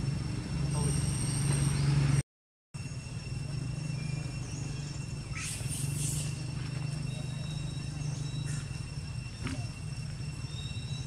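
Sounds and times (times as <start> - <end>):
steady low hum: 2.8 - 11.0.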